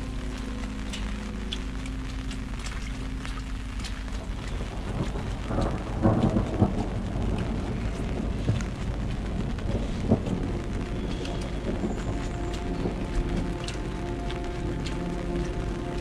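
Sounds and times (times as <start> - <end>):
heavy rain falling: 0.0 - 16.0
rain drop ticks: 0.0 - 16.0
low thunder rumble: 4.0 - 16.0.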